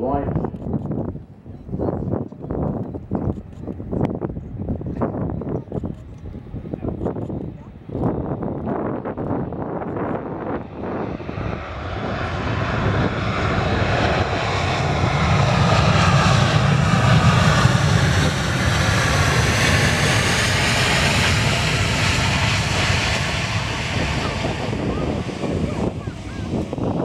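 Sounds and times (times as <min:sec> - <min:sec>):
jet engines roaring: 0:05.6 - 0:27.0.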